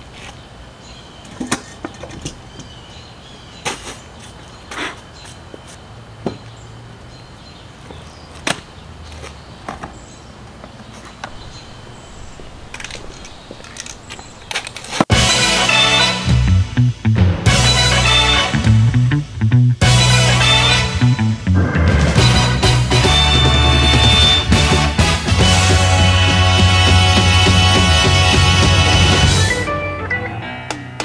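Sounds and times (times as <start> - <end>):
objects knocking on wooden bench: 6.2 - 6.5.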